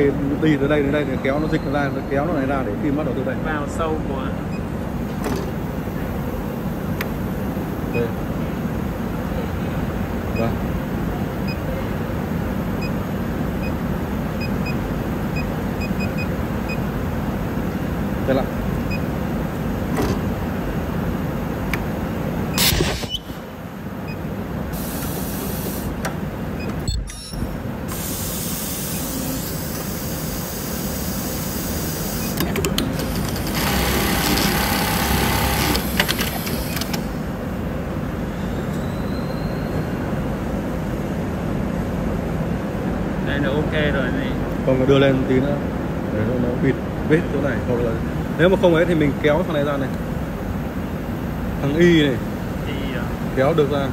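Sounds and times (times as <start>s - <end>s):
steady machine hum: 0.0s - 53.9s
hiss of air: 24.8s - 25.9s, 27.9s - 32.4s
machine clicks: 32.3s - 37.0s
fast stitching: 32.8s - 37.0s
sewing machine hum: 32.8s - 37.1s.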